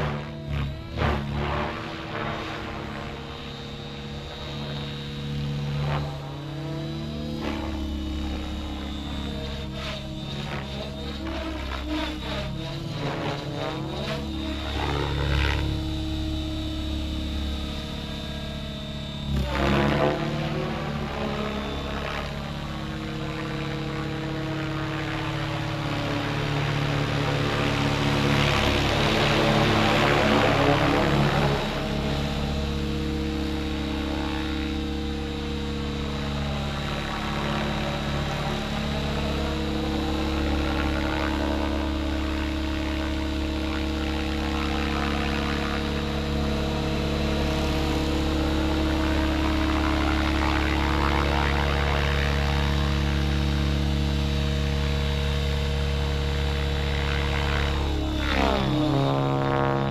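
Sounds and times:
helicopter rotor blades whirring: 0.0 - 59.9
high motor whine: 0.0 - 59.9.

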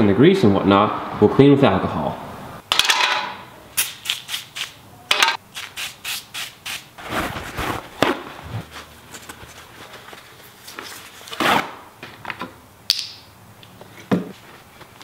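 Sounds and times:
paper towel wiping: 5.6 - 11.2.

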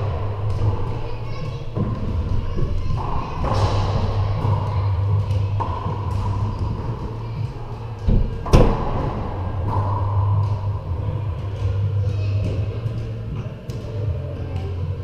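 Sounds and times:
steady low hum: 0.0 - 15.0
racquetball being hit: 8.0 - 12.2.

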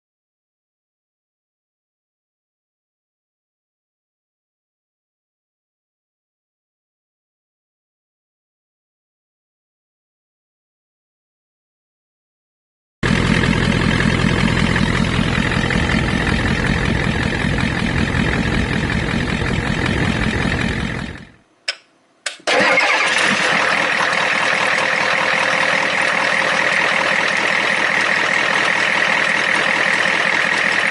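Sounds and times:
diesel engine idling: 13.0 - 21.4, 22.5 - 30.9
clicks: 21.7 - 22.5.

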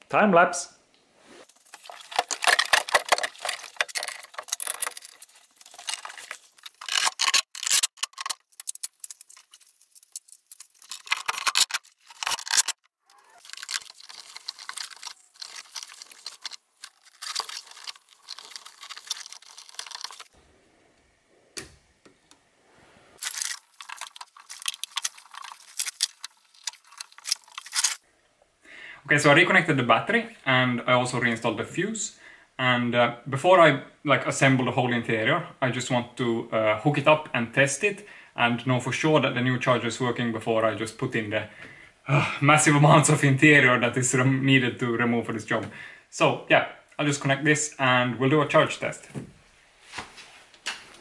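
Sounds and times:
clicking and metallic rattling: 1.5 - 20.4, 23.2 - 28.0.

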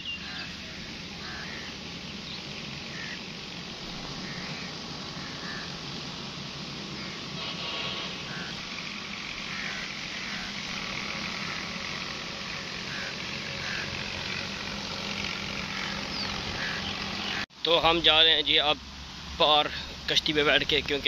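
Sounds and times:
even hiss: 0.0 - 21.0.

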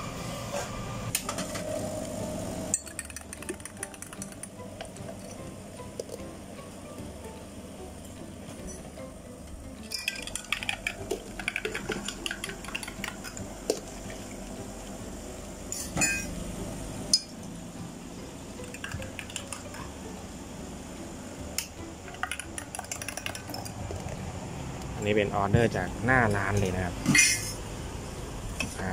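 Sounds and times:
metal utensils and cups clinking: 2.7 - 6.2, 9.8 - 13.9, 15.7 - 16.3, 18.6 - 19.9, 21.6 - 23.8, 26.5 - 27.6.

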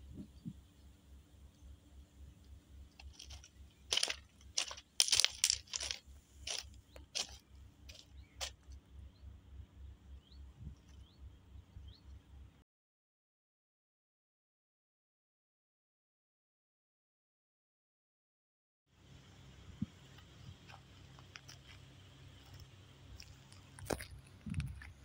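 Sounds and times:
footsteps crunching on gravel: 2.9 - 8.8, 20.1 - 25.0.

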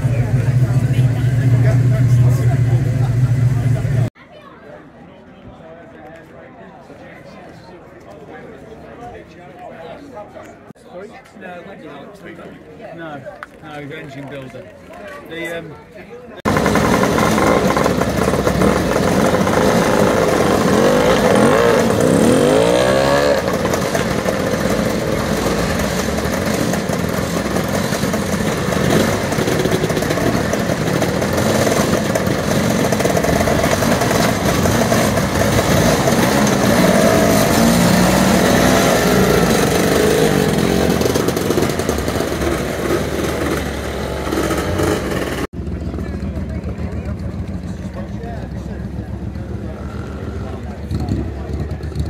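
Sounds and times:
motorcycle engine revving: 16.5 - 52.0.

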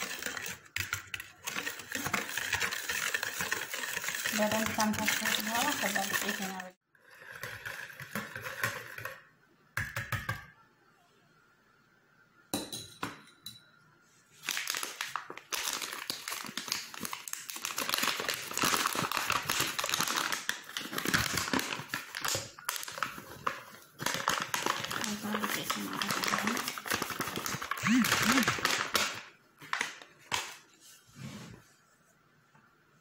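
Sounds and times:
fork stirring liquid in bowl: 0.0 - 9.2
flour bag crinkling: 14.4 - 30.6.

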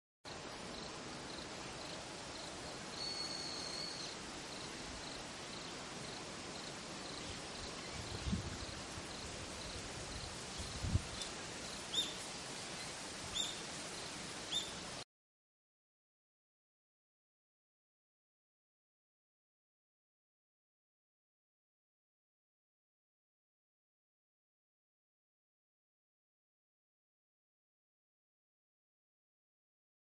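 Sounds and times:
insect chirping: 0.3 - 15.0
steady hiss: 0.3 - 15.0
short bird chirps: 3.0 - 4.2.

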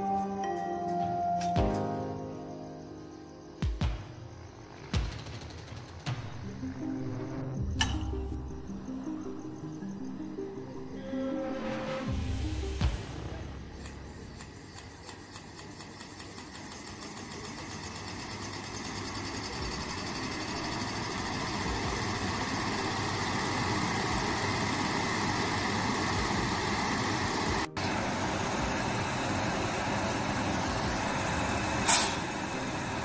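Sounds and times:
locomotive blowers whirring: 13.1 - 33.0.

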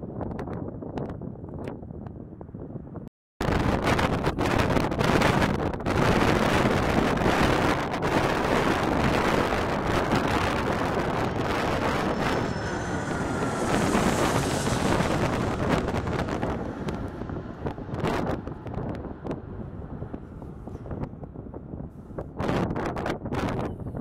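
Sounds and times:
wind buffeting microphone: 0.0 - 24.0
jet airliner passing overhead: 5.9 - 22.0.

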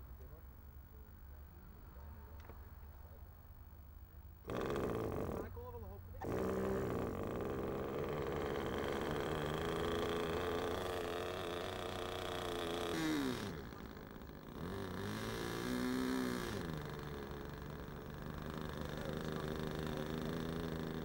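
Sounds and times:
model airplane engine buzzing: 4.4 - 21.0.

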